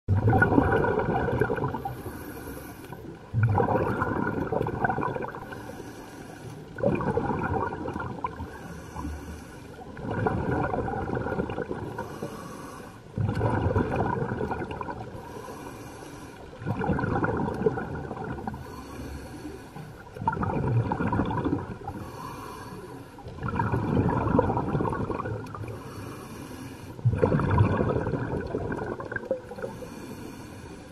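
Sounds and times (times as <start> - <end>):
exhaled bubbles rushing: 0.1 - 2.0, 3.2 - 5.6, 6.7 - 8.5, 9.8 - 12.3, 13.2 - 15.4, 16.5 - 18.7, 20.0 - 22.2, 23.2 - 25.8, 27.0 - 29.8
regulator inhale hiss: 1.8 - 3.1, 5.4 - 6.7, 8.4 - 9.8, 12.0 - 13.2, 15.2 - 16.6, 18.5 - 20.1, 21.8 - 23.3, 25.7 - 27.0, 29.6 - 30.9.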